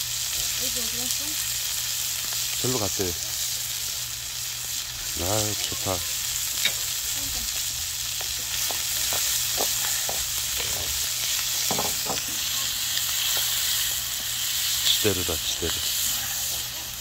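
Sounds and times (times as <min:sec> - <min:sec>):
meat sizzling on a griddle: 0:00.0 - 0:17.0
metal tongs clicking and scraping: 0:06.6 - 0:06.8.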